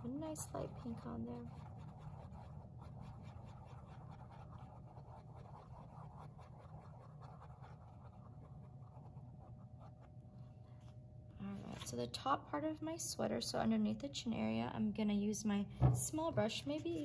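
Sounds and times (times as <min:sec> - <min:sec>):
paintbrush scratching on paper plate: 0:00.0 - 0:10.9, 0:16.2 - 0:17.0
low steady hum: 0:00.0 - 0:17.0.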